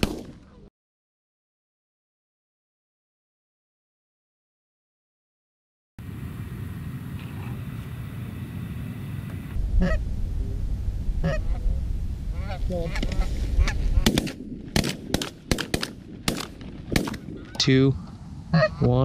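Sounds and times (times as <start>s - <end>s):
shotgun shots: 0.0s - 0.4s, 14.0s - 17.4s
wind rumble on microphone: 6.0s - 19.0s
geese honking: 9.4s - 10.0s, 11.2s - 11.6s, 12.3s - 14.1s, 18.5s - 19.0s.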